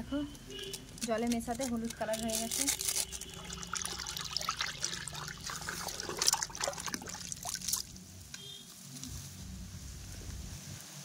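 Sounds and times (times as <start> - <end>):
water splashing and sloshing in bucket: 2.1 - 8.0.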